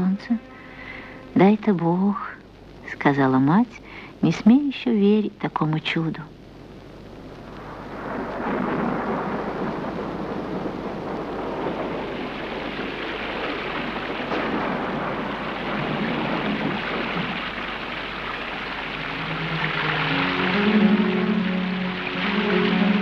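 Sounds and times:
thunder rumbling: 0:00.0 - 0:02.4, 0:07.4 - 0:23.0
heavy rain pouring: 0:00.0 - 0:04.7, 0:06.3 - 0:23.0.

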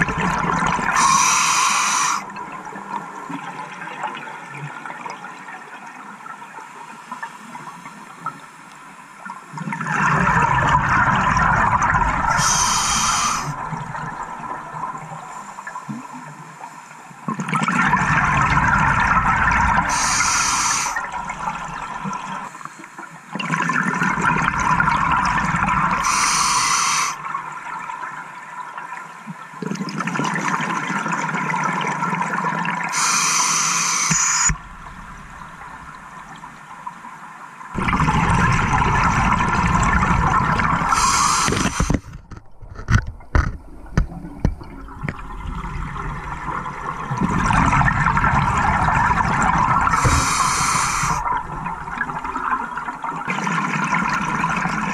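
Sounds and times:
gurgling exhaled bubbles: 0:00.0 - 0:03.5, 0:09.6 - 0:15.3, 0:17.3 - 0:22.5, 0:23.4 - 0:27.2, 0:37.7 - 0:54.9
regulator hissing inhalations: 0:00.9 - 0:02.2, 0:12.3 - 0:13.6, 0:19.9 - 0:21.0, 0:26.0 - 0:27.2, 0:32.9 - 0:34.6, 0:40.9 - 0:42.1, 0:49.9 - 0:51.3.

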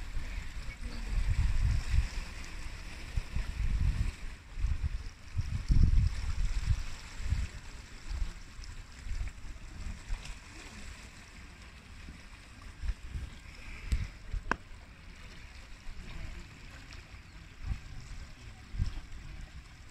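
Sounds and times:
wind gusting on microphone: 0:00.0 - 0:08.2, 0:17.5 - 0:19.9.

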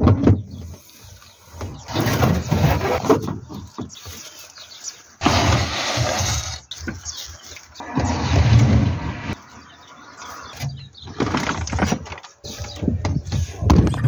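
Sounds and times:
wooden pallet scraping: 0:00.0 - 0:09.4, 0:10.6 - 0:13.7
board sliding out of car boot: 0:05.2 - 0:06.6.

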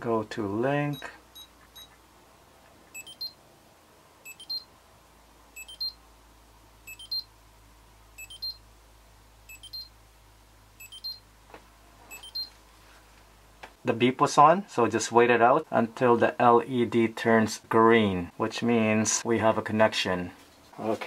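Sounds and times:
rising high beeps: 0:03.0 - 0:03.4, 0:04.3 - 0:04.7, 0:05.6 - 0:06.0, 0:06.9 - 0:07.3, 0:08.2 - 0:08.6, 0:09.5 - 0:09.9, 0:10.8 - 0:11.2, 0:12.1 - 0:12.5.

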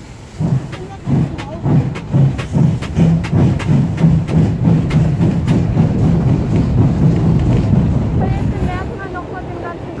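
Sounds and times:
steam locomotive exhaust beat: 0:00.0 - 0:10.0
low rumble: 0:00.3 - 0:09.2
running gear knocking: 0:00.4 - 0:08.2.

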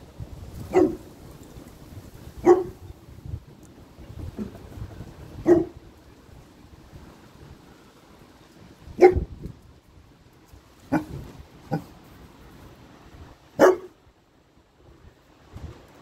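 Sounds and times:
puppy barking: 0:00.7 - 0:01.0, 0:02.4 - 0:02.8, 0:05.4 - 0:05.7, 0:09.0 - 0:09.3, 0:13.6 - 0:14.0.

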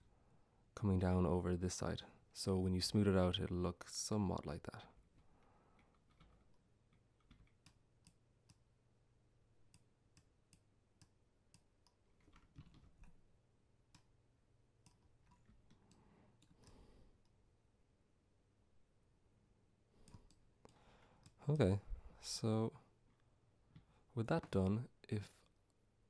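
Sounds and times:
computer mouse clicks: 0:20.0 - 0:21.4.

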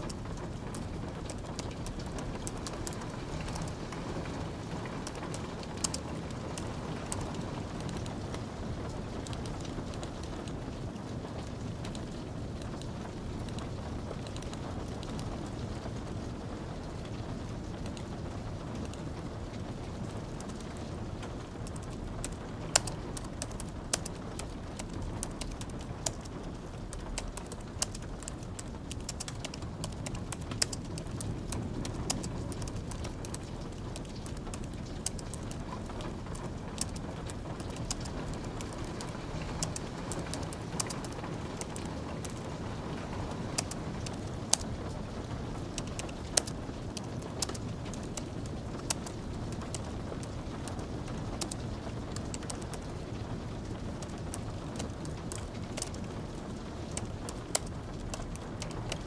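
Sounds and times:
fire crackling: 0:00.0 - 0:59.0
light rain hiss: 0:00.0 - 0:59.0
soft keyboard typing: 0:04.8 - 0:08.3, 0:13.5 - 0:15.3, 0:21.6 - 0:44.7, 0:45.6 - 0:52.9, 0:53.9 - 0:56.2, 0:56.8 - 0:59.0.

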